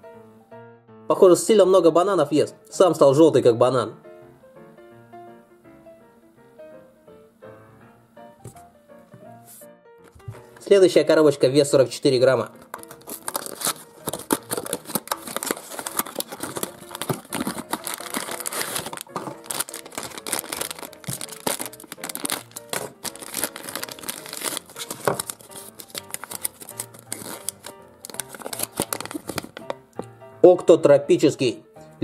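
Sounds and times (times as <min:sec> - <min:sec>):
quiet background music: 0:00.0 - 0:32.0
plastic sachet crinkling: 0:12.5 - 0:30.0
cardboard box unfolding: 0:12.6 - 0:29.7
knife slitting plastic: 0:12.6 - 0:29.7.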